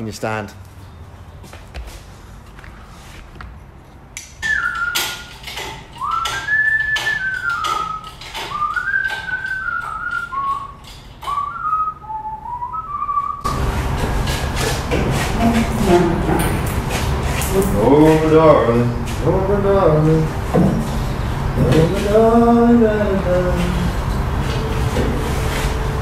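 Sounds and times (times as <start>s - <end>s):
metallic clicks and knocks: 4.2s - 11.4s
person whistling a tune: 4.4s - 5.4s, 6.0s - 13.5s
loud steady noise: 13.5s - 26.0s.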